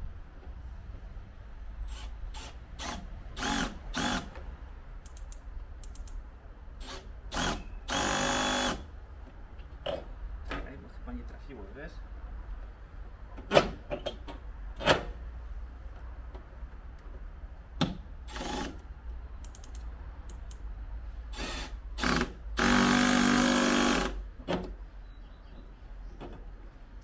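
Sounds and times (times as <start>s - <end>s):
cordless drill driving screw: 1.9s - 4.3s, 6.8s - 8.8s, 18.3s - 18.8s, 21.4s - 24.2s.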